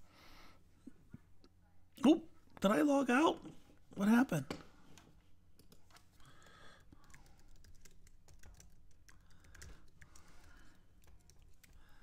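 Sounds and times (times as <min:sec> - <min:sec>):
typing on computer keyboard: 0:05.6 - 0:12.0.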